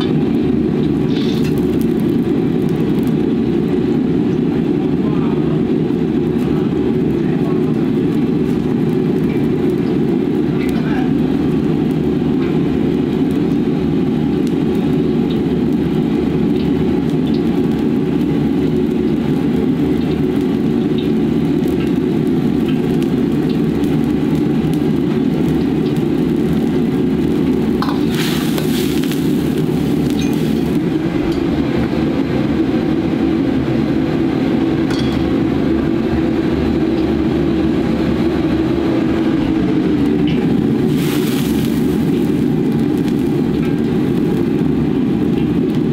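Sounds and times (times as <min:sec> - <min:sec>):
gas burners roaring: 0:00.0 - 0:45.9.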